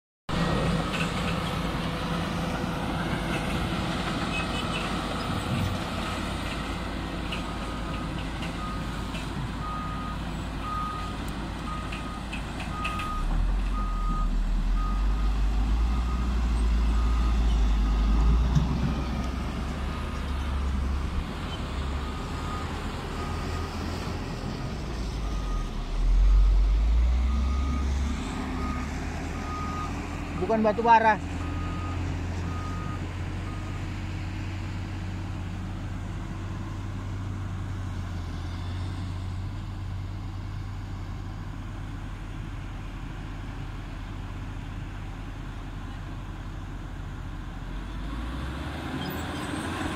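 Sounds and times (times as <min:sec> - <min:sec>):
diesel engine rumble: 0:00.3 - 0:49.9
reversing alarm beeps: 0:11.7 - 0:15.3, 0:31.4 - 0:33.8.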